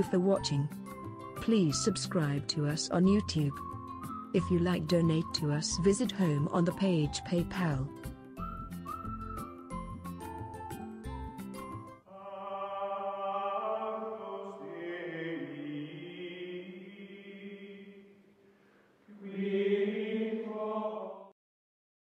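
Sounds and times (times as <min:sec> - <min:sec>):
choir-like sustained chords: 0:12.1 - 0:18.0.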